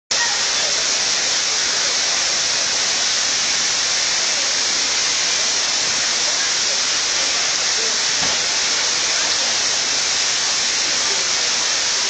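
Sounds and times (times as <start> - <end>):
falling water rushing: 0.1 - 12.0.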